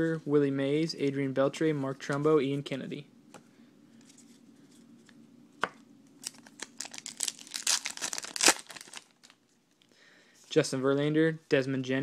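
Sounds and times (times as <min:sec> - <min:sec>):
wrapper tearing and crinkling: 0:06.2 - 0:09.4.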